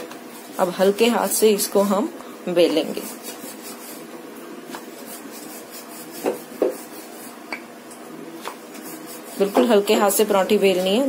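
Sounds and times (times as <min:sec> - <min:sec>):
rolling pin rolling dough on stone: 0:02.5 - 0:11.0
rolling pin knocking on board: 0:06.2 - 0:06.8.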